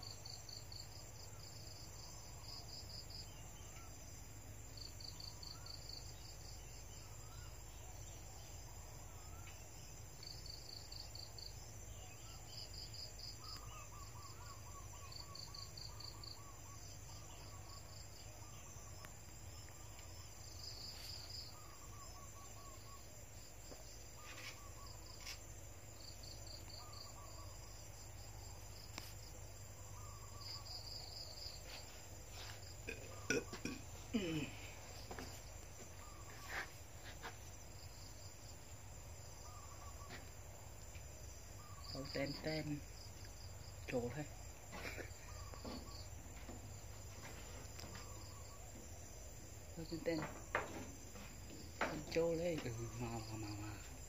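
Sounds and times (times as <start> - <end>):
faint bird-like chirps: 5.0 - 25.4, 29.7 - 38.1, 39.3 - 40.4, 41.5 - 42.8, 43.9 - 46.1, 47.2 - 48.9.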